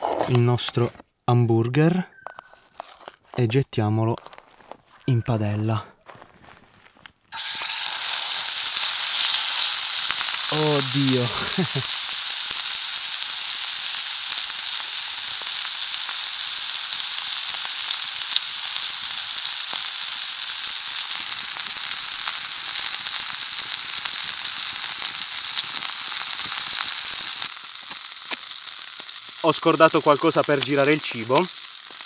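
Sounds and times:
meat sizzling in a pan: 7.3 - 32.0.

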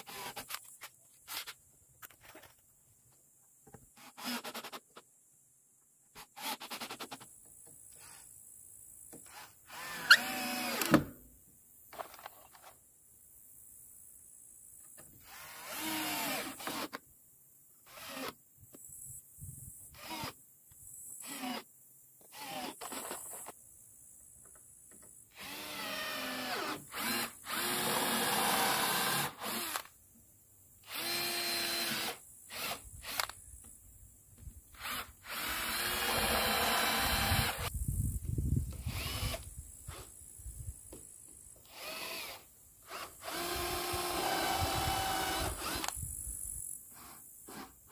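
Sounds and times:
cordless drill driving screws: 0.0 - 0.6, 9.3 - 11.0, 15.2 - 17.0, 17.9 - 18.4, 20.0 - 20.4, 21.2 - 21.6, 22.3 - 23.5, 25.3 - 29.9, 30.8 - 33.4, 34.7 - 37.7, 38.7 - 40.1, 41.6 - 46.0.

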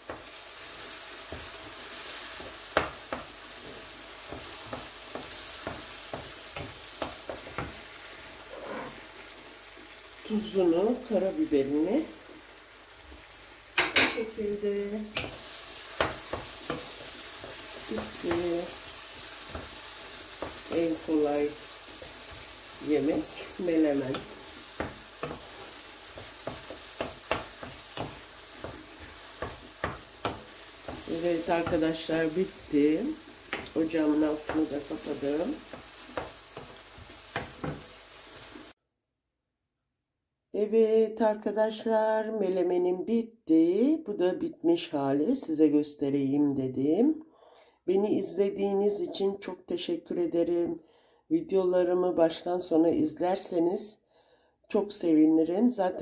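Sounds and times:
spatula scraping and tapping pan: 0.0 - 9.2, 15.1 - 38.8
food sizzling in a frying pan: 0.0 - 38.8
wooden spoon knocking against pan: 24.1 - 32.0, 35.7 - 37.9.

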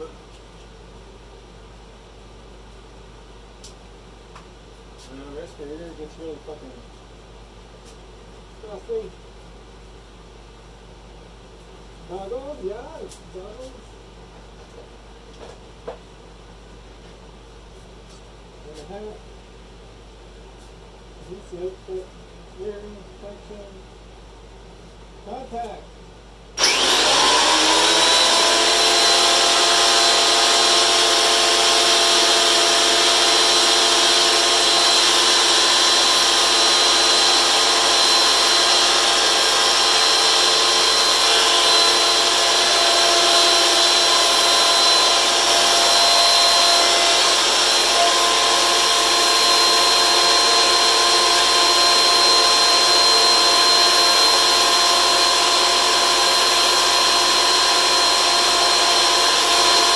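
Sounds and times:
thickness planer whining: 26.6 - 59.9.

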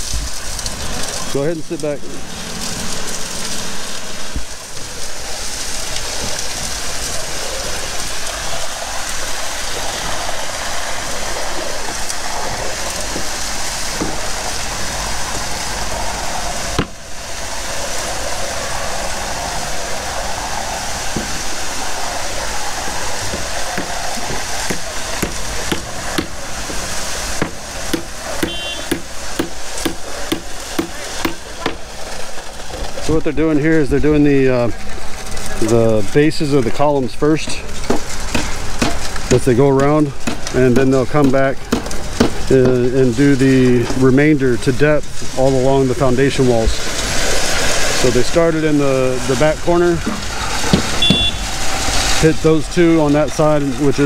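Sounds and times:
concrete pump rushing: 0.0 - 54.0
sharp knocks: 14.0 - 14.2, 23.3 - 26.3, 50.1 - 51.4.

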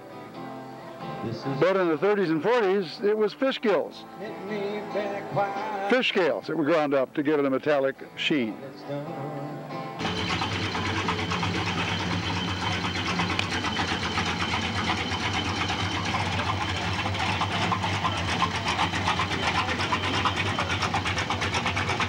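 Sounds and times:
pickup engine idling: 10.0 - 22.0.

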